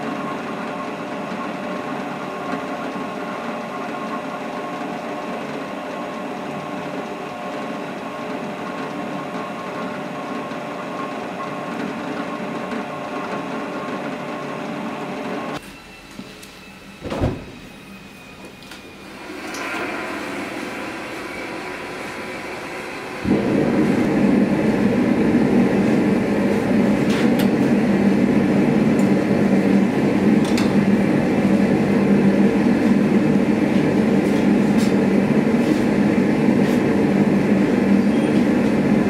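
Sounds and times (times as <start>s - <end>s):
gas burners hissing: 15.6s - 39.0s.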